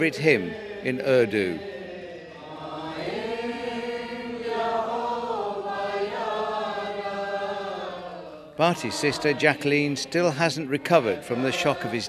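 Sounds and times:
group singing a hymn: 0:00.0 - 0:12.0.

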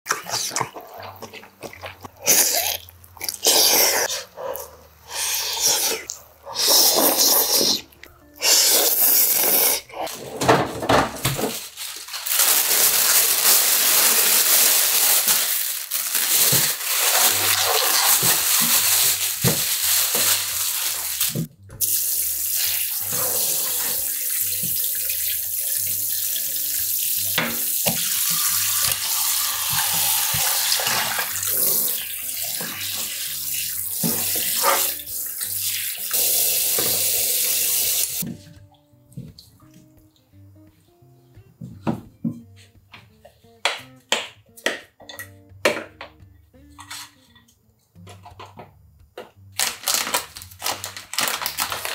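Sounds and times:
slurping noodles: 0:00.1 - 0:04.3, 0:05.0 - 0:10.2.

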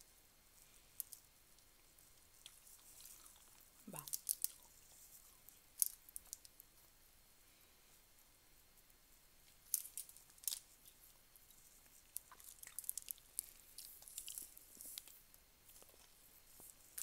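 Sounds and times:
rice crackling on foil: 0:00.0 - 0:06.8, 0:08.8 - 0:17.0
chewing clicks and smacks: 0:02.2 - 0:06.6, 0:12.0 - 0:16.1.

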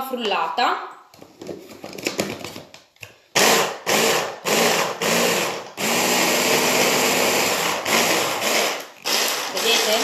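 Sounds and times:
hand blender chopping: 0:03.4 - 0:10.0.

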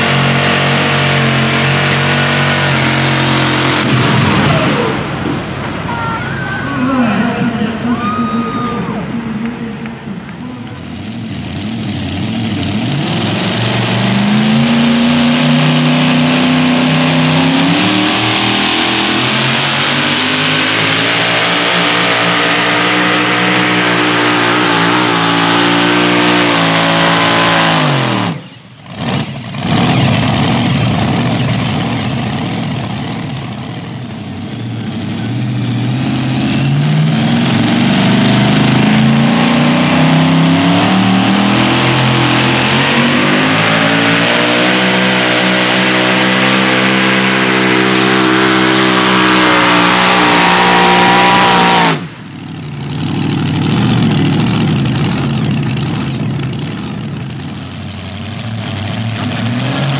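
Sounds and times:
blown engine revving: 0:00.0 - 0:59.9
pulling truck engine roaring: 0:00.0 - 0:59.9.

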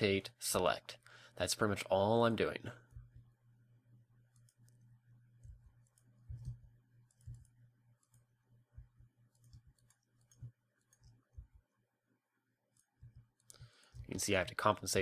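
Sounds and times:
low steady hum: 0:00.0 - 0:15.0
mouse and keyboard clicks: 0:04.3 - 0:08.3, 0:09.3 - 0:11.6.

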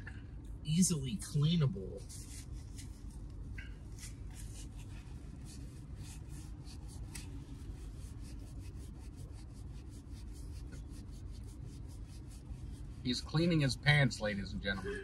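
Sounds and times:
low room hum: 0:00.0 - 0:15.0
paper napkins rubbing on fabric: 0:01.8 - 0:13.5.

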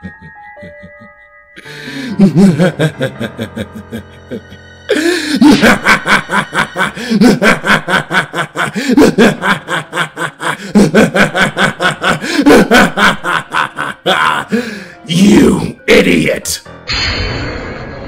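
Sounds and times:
person laughing loudly: 0:00.0 - 0:01.2, 0:02.0 - 0:14.7.

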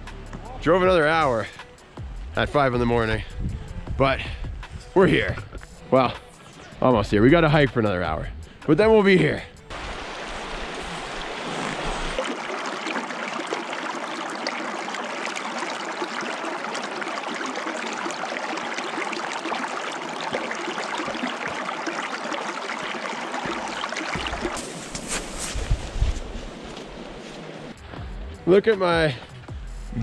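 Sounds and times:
creek running over rocks: 0:09.7 - 0:27.1.

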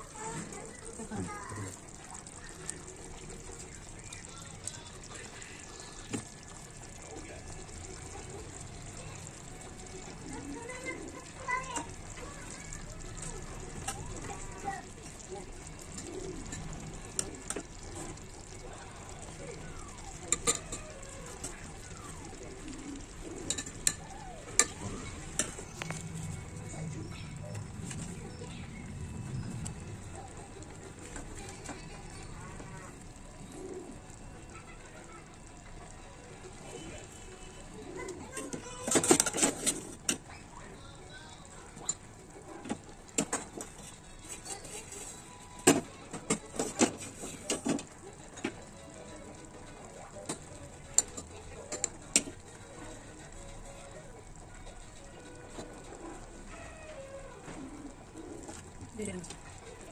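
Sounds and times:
food sizzling in a pot: 0:00.0 - 0:59.9
utensil clinking on metal pot: 0:20.3 - 0:20.8, 0:23.4 - 0:26.0.

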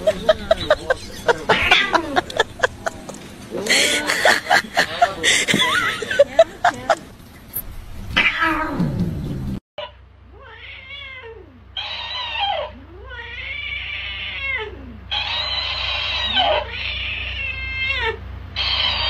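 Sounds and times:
low steady hum: 0:00.0 - 0:08.2
cat yowling: 0:01.5 - 0:02.0, 0:08.2 - 0:08.9, 0:10.4 - 0:19.0.

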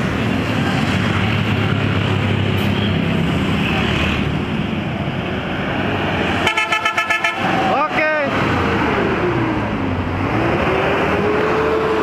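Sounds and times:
road traffic noise: 0:00.0 - 0:12.0
bus engine pulling away: 0:07.4 - 0:12.0.

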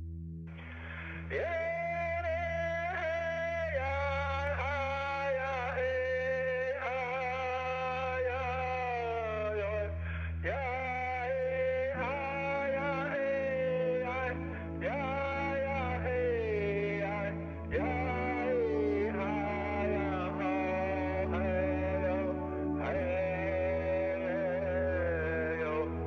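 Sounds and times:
solo voice singing held notes: 0:01.0 - 0:26.0.

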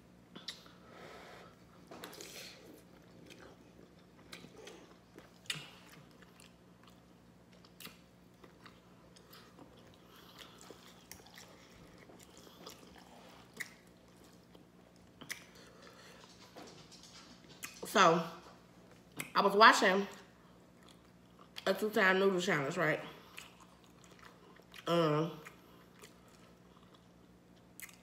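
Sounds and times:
mouth clicks and smacks: 0:00.3 - 0:00.7
faint chewing: 0:00.3 - 0:19.4, 0:23.1 - 0:28.0.

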